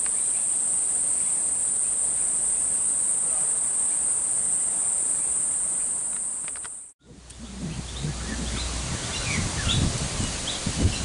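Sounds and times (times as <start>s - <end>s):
birds chirping: 0.0s - 11.0s
insects droning: 0.0s - 11.0s
leaves rustling: 0.0s - 11.0s
wind rumble: 7.1s - 11.0s.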